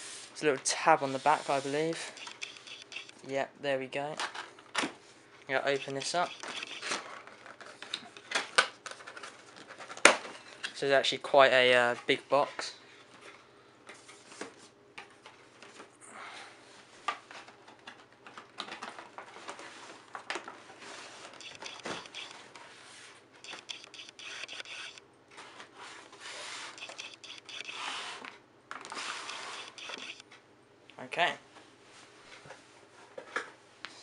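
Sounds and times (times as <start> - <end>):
plastic and cardboard scraping: 20.7 - 30.2
small clicks and knocks: 23.4 - 25.0.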